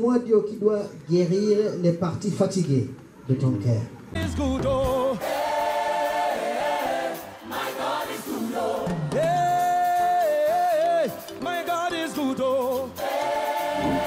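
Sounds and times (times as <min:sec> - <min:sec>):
gospel choir singing: 0:04.2 - 0:14.0.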